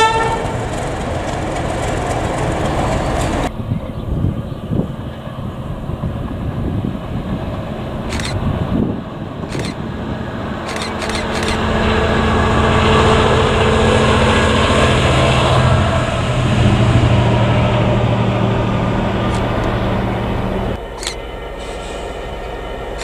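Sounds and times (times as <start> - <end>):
diesel locomotive engines droning: 0.0 - 23.0
wheel and rail noise: 0.0 - 23.0
sharp clicks: 8.1 - 8.4, 9.5 - 9.8, 10.7 - 11.6, 19.3 - 19.7, 21.0 - 21.2.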